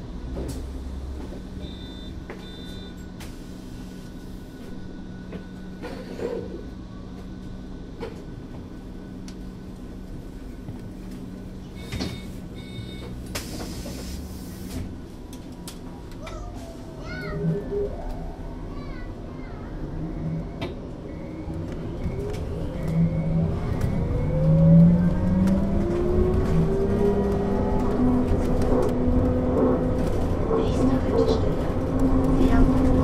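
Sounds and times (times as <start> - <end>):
trolleybus low hum: 0.0 - 33.0.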